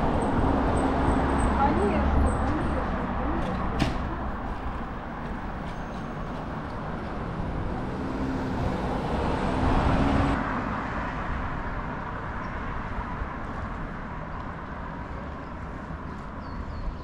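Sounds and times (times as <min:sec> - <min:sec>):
city street traffic: 0:00.0 - 0:17.0
vehicle engine passing close: 0:06.6 - 0:10.4.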